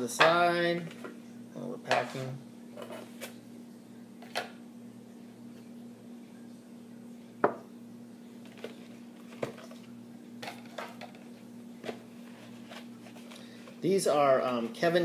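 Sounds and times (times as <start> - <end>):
teacup knocking on wooden table: 7.4 - 7.6.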